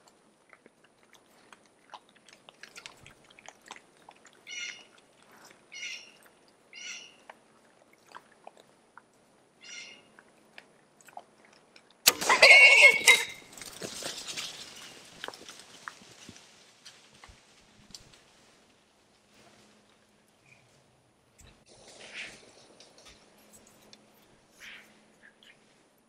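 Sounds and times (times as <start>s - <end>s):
hogs crunching corn: 0.0s - 9.2s, 10.1s - 18.3s
hogs squealing: 4.5s - 5.0s, 5.7s - 6.2s, 9.6s - 10.0s, 12.1s - 13.5s
hogs scrambling: 11.1s - 18.2s
bow shot crack: 12.1s - 12.4s.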